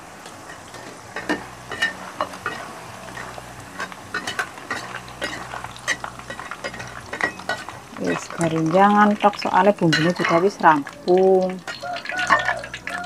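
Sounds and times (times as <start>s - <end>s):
oil sizzling: 0.0s - 13.0s
metal spatula scraping a wok: 0.5s - 8.4s, 9.9s - 11.0s, 11.6s - 12.8s.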